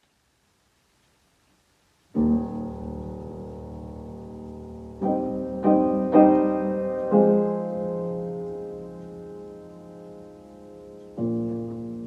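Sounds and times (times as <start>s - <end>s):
piano chords: 2.1s - 12.0s.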